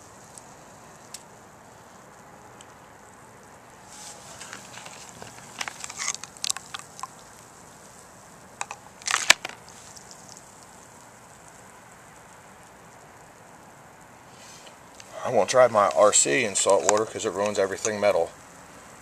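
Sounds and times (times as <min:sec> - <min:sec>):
handling clicks and rustles: 0:04.0 - 0:07.3, 0:08.6 - 0:10.4, 0:15.8 - 0:18.3.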